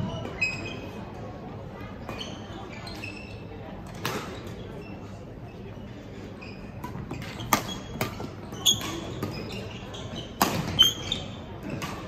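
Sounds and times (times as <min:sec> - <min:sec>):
shoes squeaking on court floor: 0:00.0 - 0:01.0, 0:02.0 - 0:12.0
rackets hitting shuttlecock: 0:06.8 - 0:09.4, 0:10.2 - 0:12.0.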